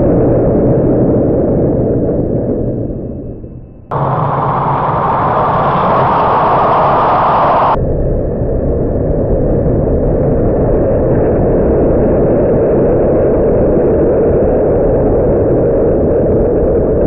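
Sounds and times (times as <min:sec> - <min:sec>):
slot cars whirring: 0:03.9 - 0:07.8.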